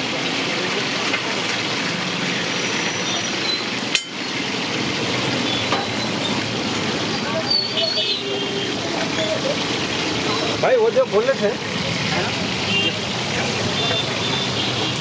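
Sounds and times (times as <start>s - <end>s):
fish sizzling in hot oil: 0.0s - 15.0s
metal spatula clinking on pan: 3.9s - 4.2s.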